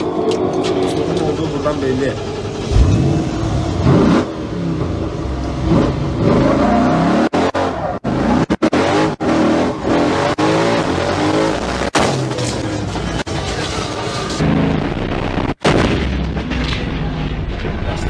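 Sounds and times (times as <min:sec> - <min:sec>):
pickup engine revving: 0:00.9 - 0:13.2
crash: 0:11.8 - 0:18.0.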